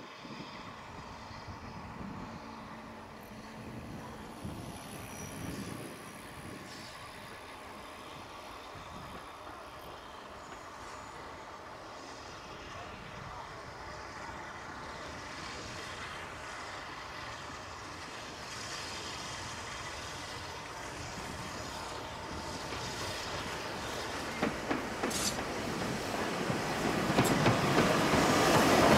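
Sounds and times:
steam train rumble and hiss: 0.0 - 28.9.

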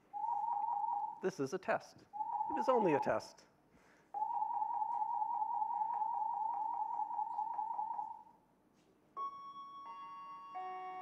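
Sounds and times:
fire alarm pulsing beeps: 0.0 - 1.2, 2.1 - 3.2, 4.2 - 8.4, 9.2 - 11.0.

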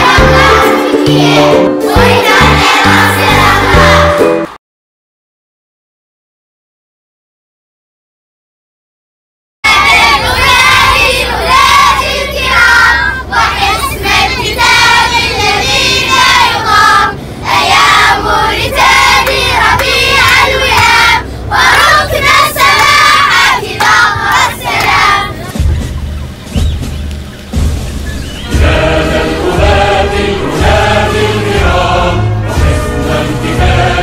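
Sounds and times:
children singing and chanting: 0.0 - 4.4, 9.7 - 25.9, 28.1 - 34.0
bus engine drone: 9.7 - 34.0.

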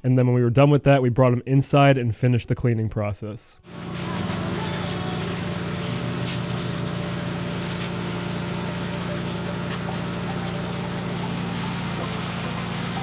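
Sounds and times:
pressure washer running: 3.7 - 13.0
water jet hissing: 3.7 - 13.0.

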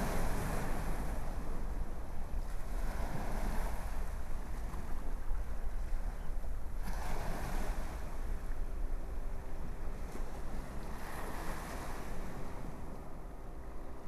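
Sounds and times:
ocean surf washing onto beach: 0.0 - 5.7
low wind rumble: 0.0 - 14.0.

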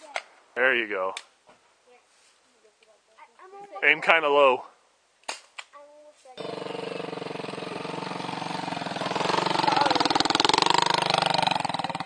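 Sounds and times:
atv engine running and revving: 6.4 - 12.0.

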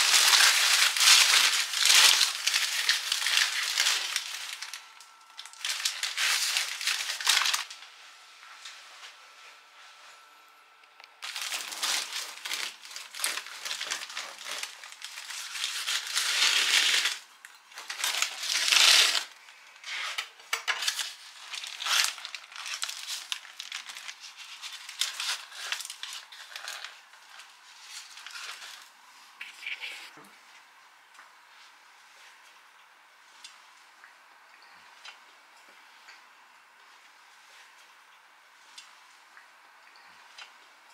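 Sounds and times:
bread crust crackling: 0.0 - 7.7, 11.2 - 19.3, 20.8 - 28.9.

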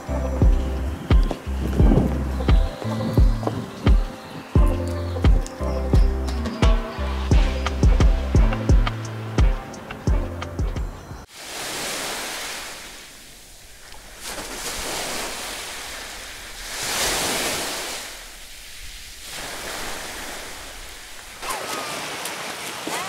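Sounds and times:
small waves washing on sand: 11.3 - 23.0.

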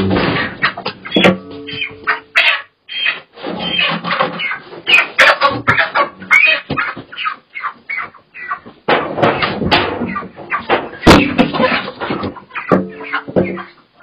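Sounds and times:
chickens squawking: 0.0 - 14.0
sharp knocks: 1.1 - 2.1, 10.7 - 11.6.

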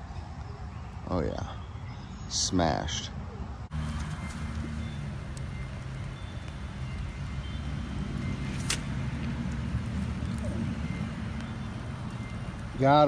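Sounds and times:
low motor hum: 3.7 - 12.8.

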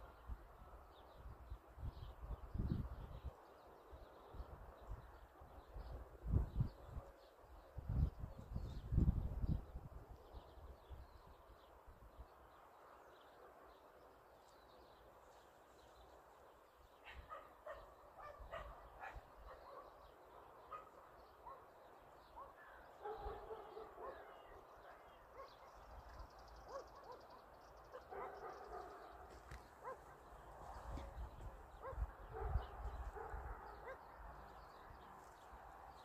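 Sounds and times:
distant puppies baying and yelping: 17.0 - 34.2.

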